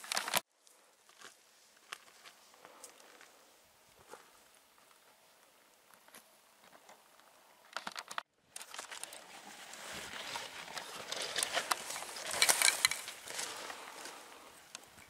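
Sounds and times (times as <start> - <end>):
footsteps on stony ground: 0.0 - 5.0, 8.6 - 15.0.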